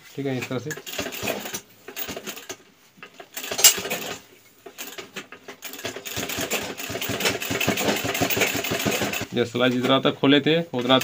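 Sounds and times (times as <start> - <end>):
sewing machine stitching: 0.6 - 10.0.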